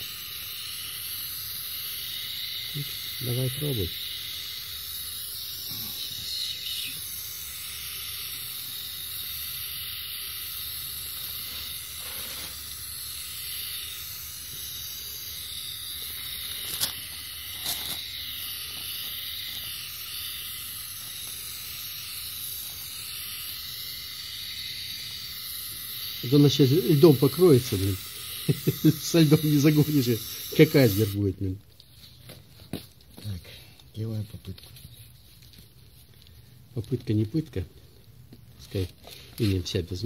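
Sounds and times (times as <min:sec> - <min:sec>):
gas hissing from torch nozzle: 0:00.0 - 0:31.4.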